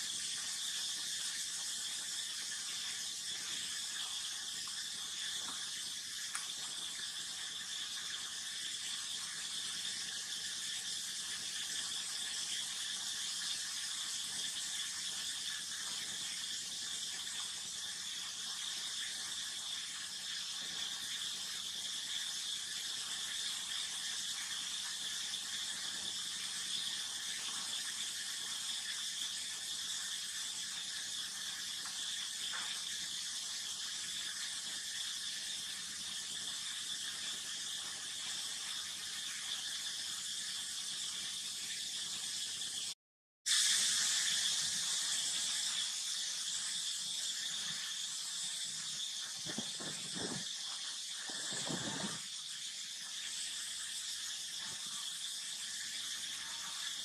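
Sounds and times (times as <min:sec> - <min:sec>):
high-pitched insect chorus: 0:43.6 - 0:57.0.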